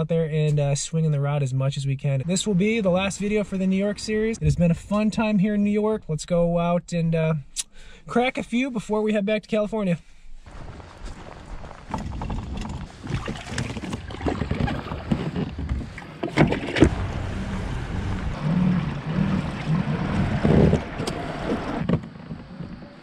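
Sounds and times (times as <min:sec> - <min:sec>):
wind on microphone: 0:02.4 - 0:05.3, 0:10.5 - 0:23.0
water against hull: 0:10.4 - 0:23.0
gear knocking against boat: 0:11.8 - 0:17.2.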